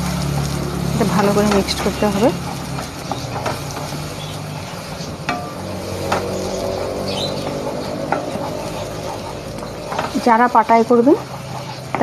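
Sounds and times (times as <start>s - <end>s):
faint oil sizzle: 0.0s - 12.0s
spatula scraping a pan: 0.1s - 12.0s
spatula knocking against pan: 5.2s - 6.4s.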